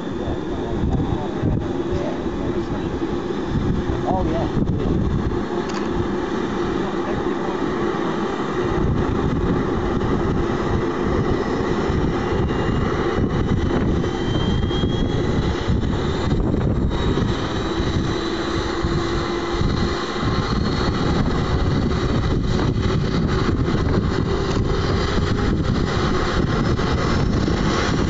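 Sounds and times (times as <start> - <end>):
model helicopter engine humming: 0.0 - 28.0.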